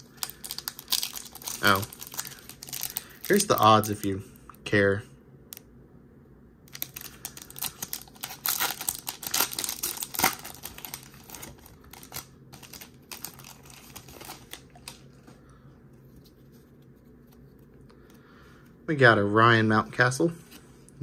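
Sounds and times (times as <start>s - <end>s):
foil wrapper crinkling: 0.0s - 4.1s, 6.7s - 15.4s.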